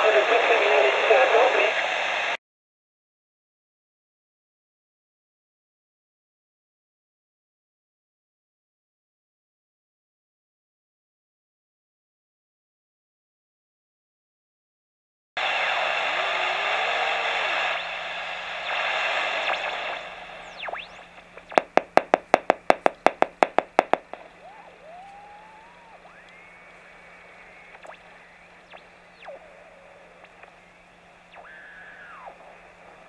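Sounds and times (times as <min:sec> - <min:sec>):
radio receiver rushing hiss: 0:15.4 - 0:33.0
fast clicks: 0:21.4 - 0:26.8
whistling tones changing pitch: 0:24.2 - 0:29.4.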